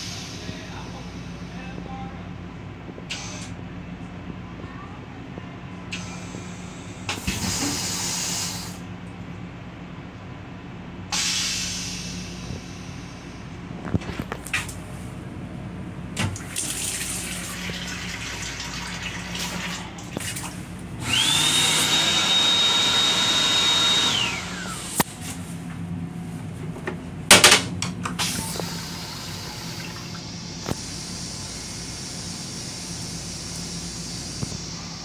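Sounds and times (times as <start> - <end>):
toilet flushing: 16.2 - 24.9, 28.2 - 35.0
hand dryer motor whine: 21.0 - 25.0.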